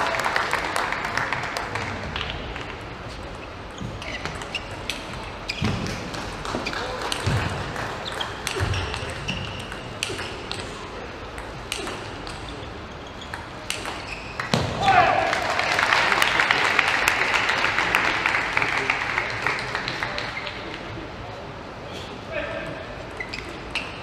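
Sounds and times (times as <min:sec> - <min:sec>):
shoes squeaking: 0:03.0 - 0:10.8, 0:11.7 - 0:14.6, 0:23.0 - 0:24.0.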